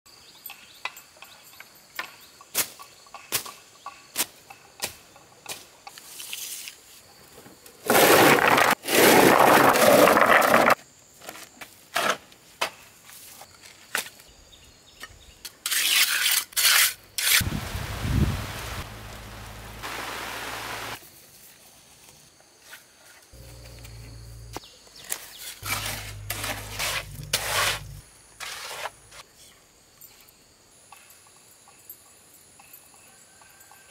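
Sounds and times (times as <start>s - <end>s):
stones tumbling and rattling: 7.8s - 12.2s, 25.0s - 29.2s.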